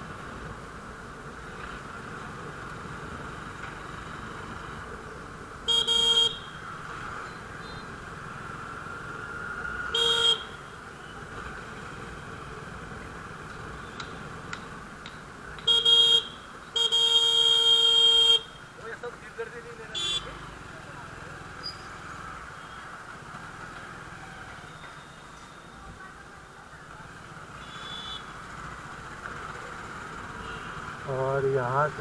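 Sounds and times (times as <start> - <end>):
road and wind noise: 0.0 - 32.0
motorcycle horn beeping: 5.7 - 6.6, 9.9 - 10.8, 15.6 - 18.6, 19.9 - 20.4, 27.6 - 28.4, 30.4 - 30.8.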